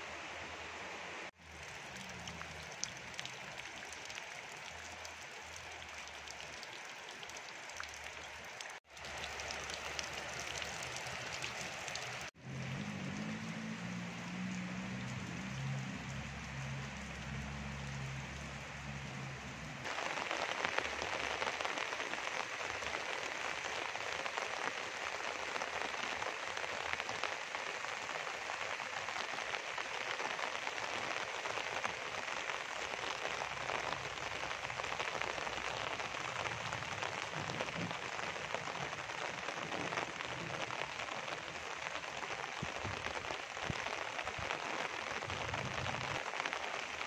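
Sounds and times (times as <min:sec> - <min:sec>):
rain falling on plants: 0:00.1 - 0:47.0.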